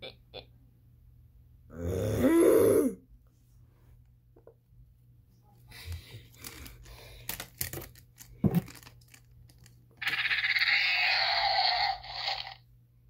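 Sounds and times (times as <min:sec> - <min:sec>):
child screeching monster cry: 0:10.0 - 0:12.6.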